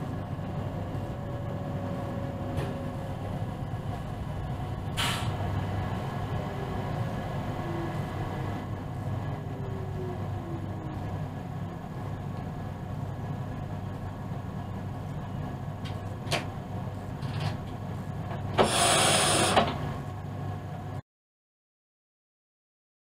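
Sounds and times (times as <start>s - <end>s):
loud hiss: 18.6s - 19.7s.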